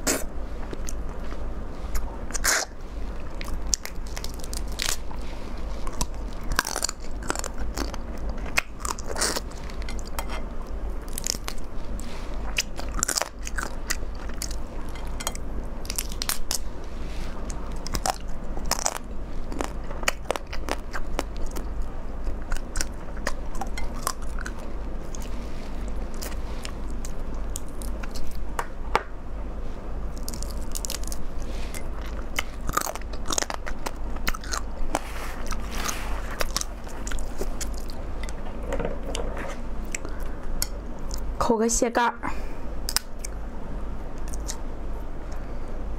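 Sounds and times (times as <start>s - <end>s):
wet mouth sounds: 0.0s - 0.3s, 2.0s - 2.8s
crunching and chewing crab: 0.0s - 28.7s, 30.0s - 41.3s, 44.2s - 45.5s
steady low hum: 0.0s - 45.9s.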